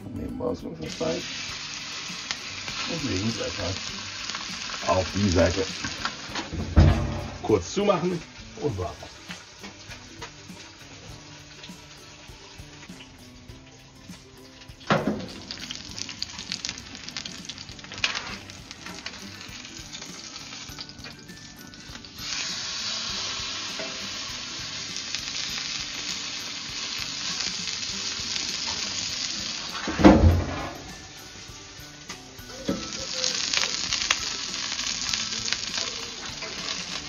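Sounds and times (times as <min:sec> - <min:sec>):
meat sizzling on a griddle: 0:00.8 - 0:37.0
grill lid knock: 0:06.5 - 0:07.5, 0:14.9 - 0:15.5.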